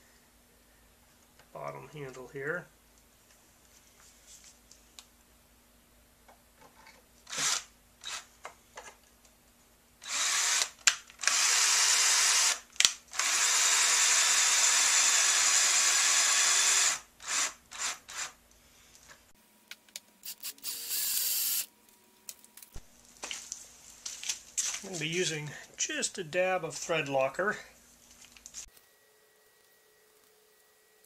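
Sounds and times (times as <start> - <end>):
cordless drill driving screws: 7.3 - 8.3, 10.0 - 18.4, 20.2 - 21.7.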